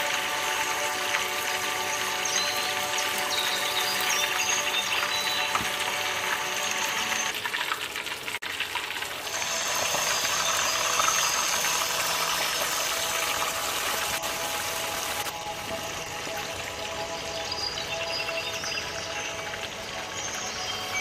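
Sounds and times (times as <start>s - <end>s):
fish sizzling in hot oil: 0.0s - 21.0s.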